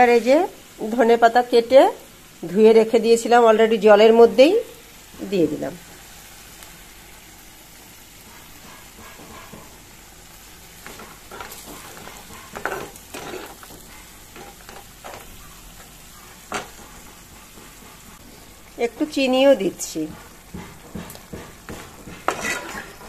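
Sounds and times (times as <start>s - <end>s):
curry simmering in wok: 0.2s - 23.0s
metal spatula scraping wok: 10.8s - 18.5s, 21.5s - 23.0s.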